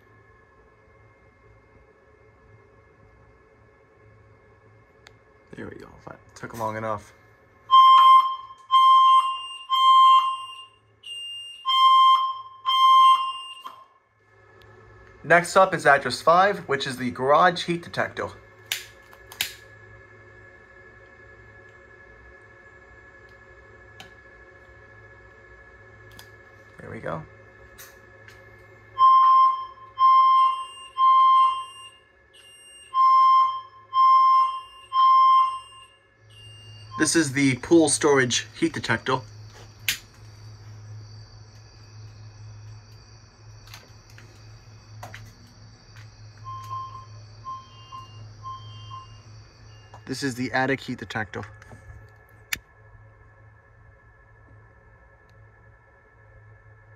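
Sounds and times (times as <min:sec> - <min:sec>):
faint higher beep: 0:07.7 - 0:10.8, 0:29.0 - 0:37.6, 0:46.4 - 0:50.1
fire alarm beeps: 0:07.7 - 0:14.1, 0:28.9 - 0:39.7, 0:46.0 - 0:50.7.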